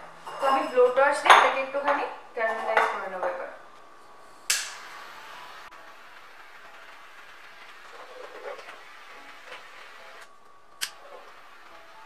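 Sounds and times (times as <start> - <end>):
kitchen blowtorch hissing: 4.2 - 12.0.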